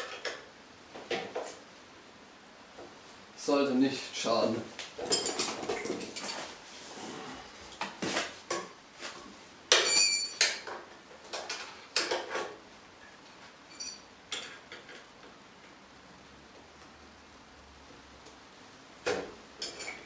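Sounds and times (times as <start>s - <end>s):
metal tools clinking on metal: 9.7s - 10.7s, 13.7s - 14.6s.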